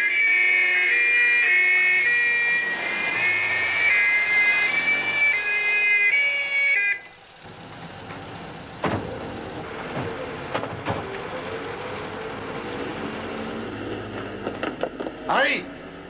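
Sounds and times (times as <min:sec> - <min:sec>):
two-tone police siren: 0:00.0 - 0:07.6, 0:09.0 - 0:14.0.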